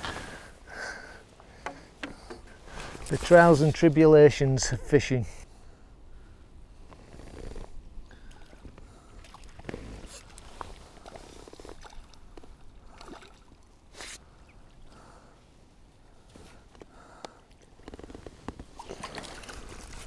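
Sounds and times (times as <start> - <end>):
light clicks and knocks: 1.5 - 2.6
water lapping at shore: 8.1 - 15.3, 18.6 - 20.0.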